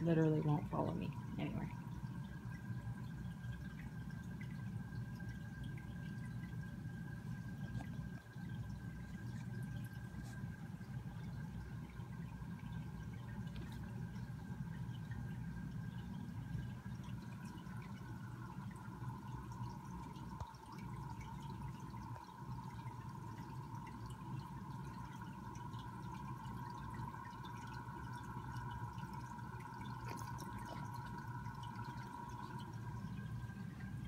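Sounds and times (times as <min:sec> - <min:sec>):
pump hum: 0:00.0 - 0:34.0
water trickling and dripping: 0:00.0 - 0:34.0.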